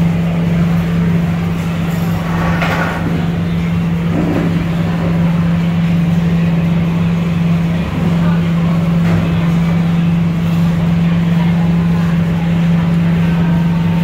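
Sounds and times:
low mechanical motor hum: 0.0 - 14.0.

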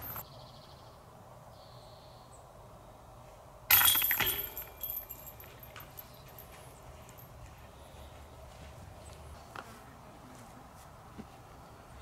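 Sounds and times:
disc hitting basket chains: 0.0 - 0.2, 3.7 - 7.3
light metallic clink: 3.7 - 7.4.

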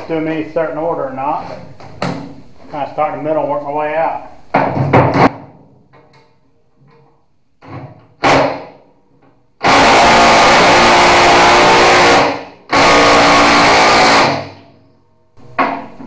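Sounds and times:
impact wrench hammering nuts: 8.2 - 8.8, 9.6 - 14.6.

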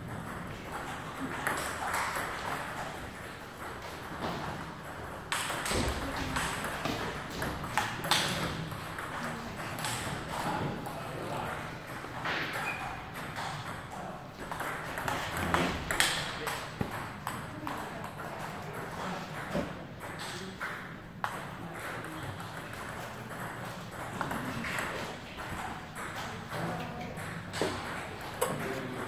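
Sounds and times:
table tennis balls clicking: 0.0 - 29.0.

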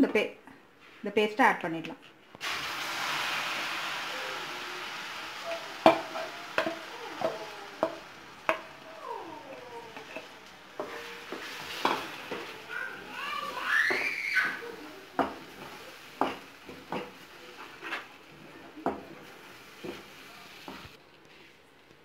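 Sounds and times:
paste sizzling in butter: 2.4 - 8.9, 9.5 - 21.0
spatula scraping bowl: 9.9 - 13.1
spatula taps and squeaks: 13.8 - 14.6.

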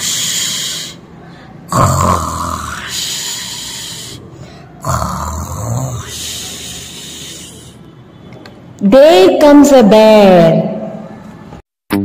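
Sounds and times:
hissing out-breath: 0.0 - 1.7, 6.1 - 7.8
exaggerated snoring: 1.6 - 7.8.

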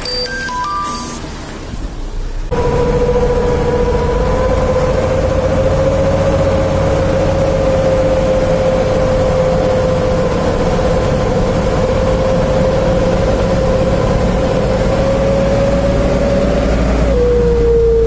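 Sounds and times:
diesel truck engine rumble: 0.0 - 18.0
howling whistle exhaust: 2.5 - 8.1.

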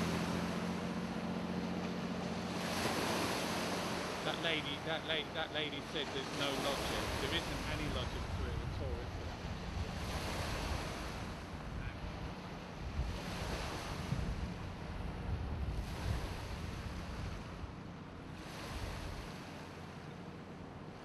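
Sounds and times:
water washing onto shore: 0.0 - 15.0
wind rumbling on microphone: 5.9 - 19.5.

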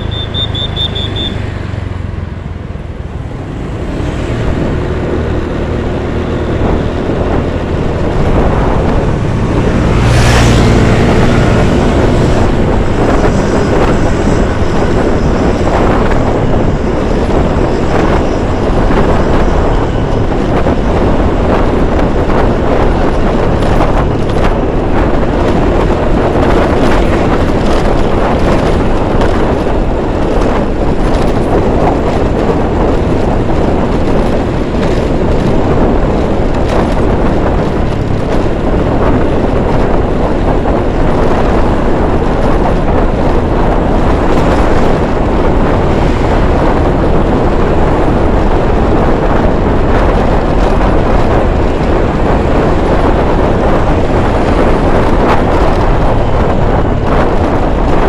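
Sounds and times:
scooter engine: 0.0 - 40.6
tyres on road: 0.0 - 58.0
wind on microphone: 0.0 - 58.0.

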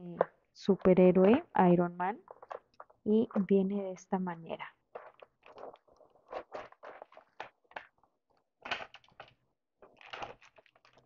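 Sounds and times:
packaging crinkling: 4.9 - 11.0
cardboard box scraping: 5.0 - 7.4.

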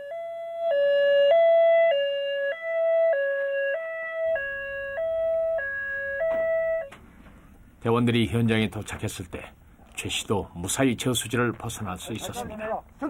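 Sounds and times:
ambulance two-tone siren: 0.0 - 7.0.

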